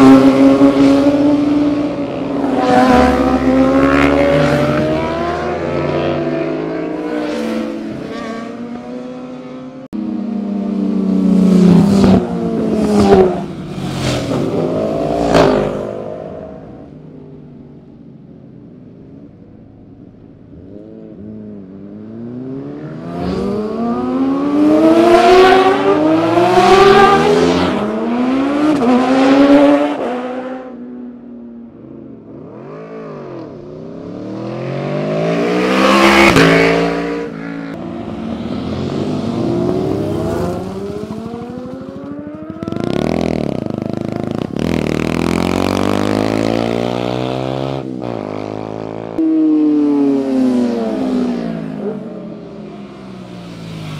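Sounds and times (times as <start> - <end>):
motorcycles revving past: 0.0 - 16.9, 32.4 - 53.9.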